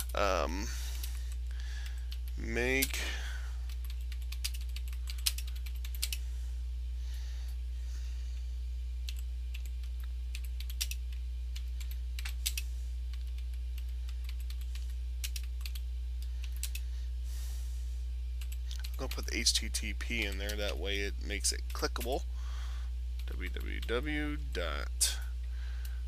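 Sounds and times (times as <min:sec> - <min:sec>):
low electrical hum: 0:00.0 - 0:26.0.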